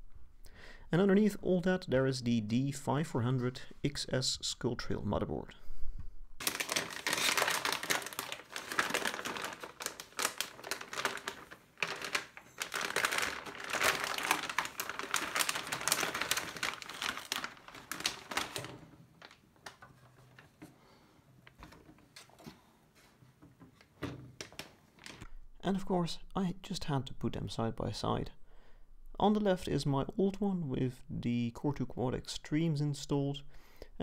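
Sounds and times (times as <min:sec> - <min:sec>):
plastic bag crinkling: 0:06.4 - 0:20.5, 0:24.4 - 0:25.3.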